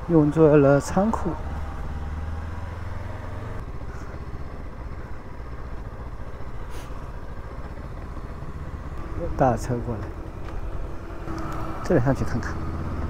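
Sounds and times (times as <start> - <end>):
motorcycle engine idling: 0.0 - 12.8.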